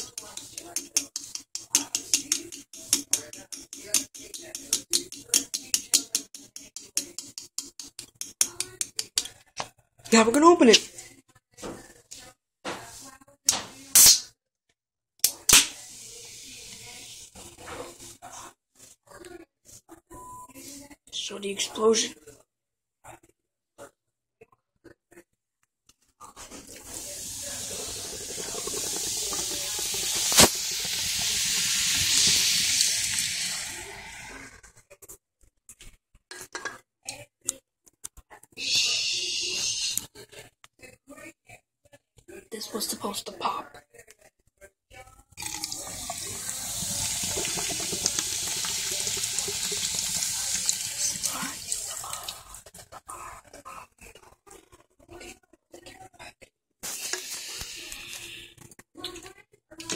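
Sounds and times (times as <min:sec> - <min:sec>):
soda fizzing into a sink: 0:15.7 - 0:18.1, 0:26.4 - 0:34.7, 0:45.4 - 0:52.8, 0:56.8 - 0:58.4.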